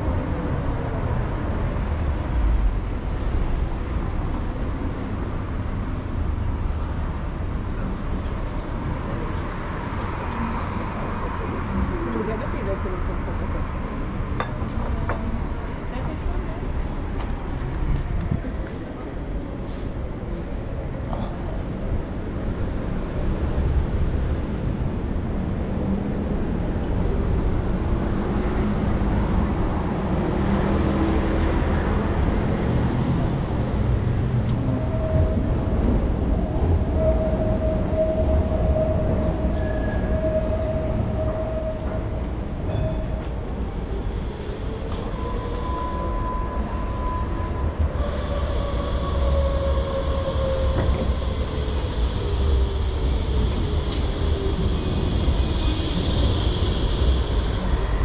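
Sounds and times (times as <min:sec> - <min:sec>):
tram rumbling: 0:00.0 - 0:58.0.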